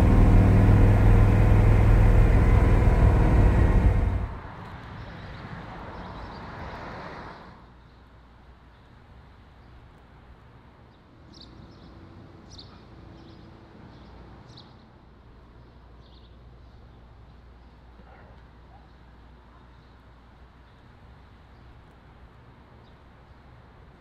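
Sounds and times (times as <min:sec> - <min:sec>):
low rumble: 0:00.0 - 0:04.5
road noise: 0:00.0 - 0:24.0.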